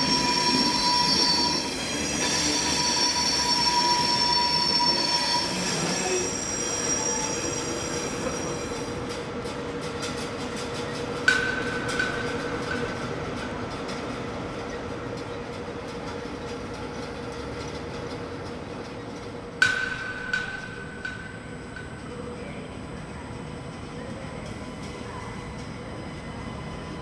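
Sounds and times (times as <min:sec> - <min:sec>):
train rail running noise: 0:00.0 - 0:27.0
sharp metallic clanks: 0:11.2 - 0:13.5, 0:19.6 - 0:22.1.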